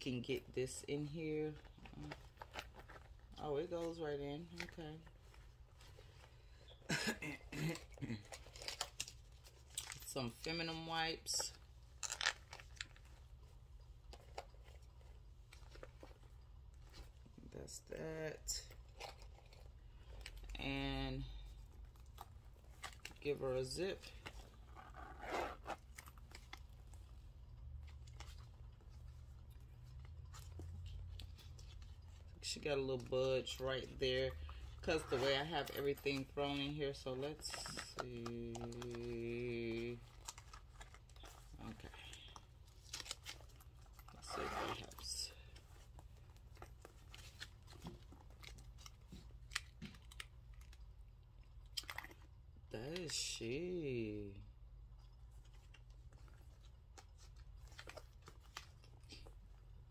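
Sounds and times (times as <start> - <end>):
low steady hum: 0.0 - 59.9
zipper pulled closed: 24.2 - 26.2, 34.8 - 36.0, 44.1 - 45.2.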